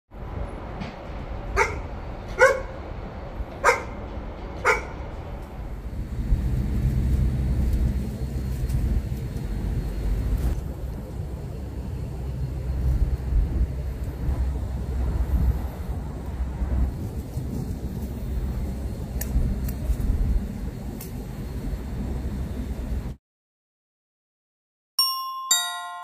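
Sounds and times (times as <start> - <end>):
low outdoor rumble: 0.1 - 23.2
dog barking: 1.6 - 2.8, 3.6 - 4.0, 4.6 - 5.0.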